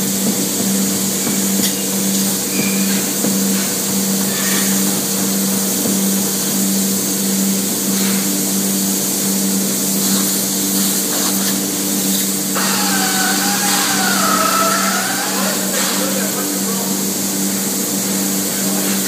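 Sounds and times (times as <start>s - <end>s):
spray foam gun hissing: 9.9s - 17.5s
pump humming: 11.6s - 18.8s
wavering whine: 12.6s - 16.8s.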